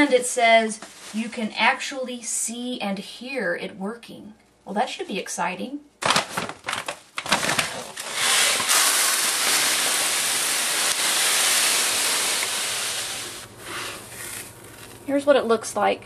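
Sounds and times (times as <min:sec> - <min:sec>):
plastic bag rustling: 0:00.6 - 0:01.8, 0:06.0 - 0:15.1
litter crystals pouring: 0:07.2 - 0:15.1.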